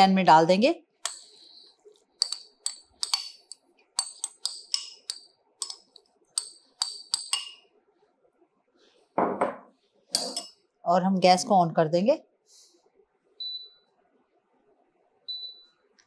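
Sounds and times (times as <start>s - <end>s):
spoon clinking against glass bowl: 2.2s - 7.7s, 10.1s - 10.6s.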